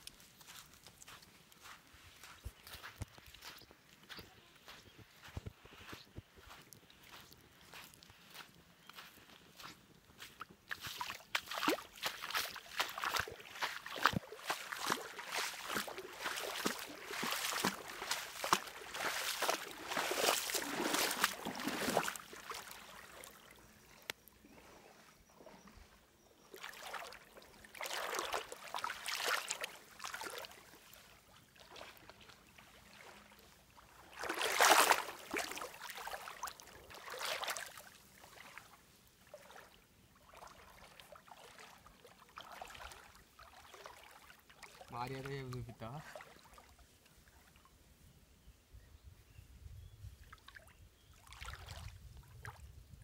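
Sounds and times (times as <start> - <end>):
stream water splashing: 10.6 - 25.0, 26.5 - 47.7, 50.3 - 52.6.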